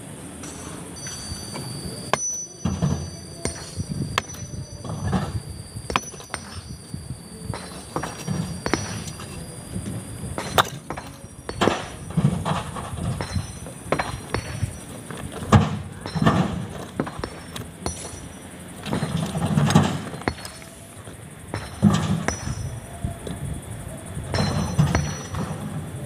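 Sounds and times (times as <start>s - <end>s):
rocks clinking together: 0.4s - 6.9s, 7.5s - 9.5s, 10.3s - 20.9s.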